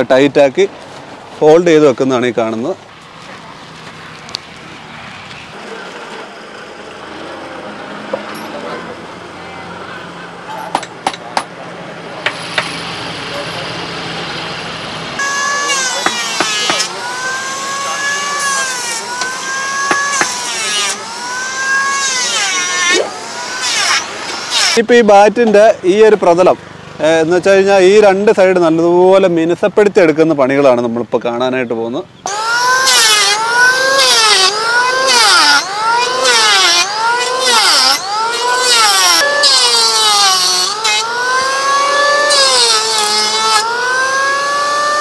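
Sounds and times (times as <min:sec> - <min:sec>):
electric lathe whine: 0:15.2 - 0:24.8, 0:32.3 - 0:45.0.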